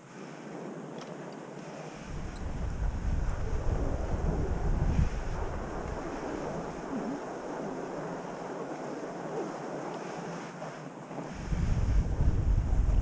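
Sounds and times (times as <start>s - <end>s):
tyres rolling on packed snow: 0.0s - 11.5s
wind buffeting microphone: 0.4s - 13.0s.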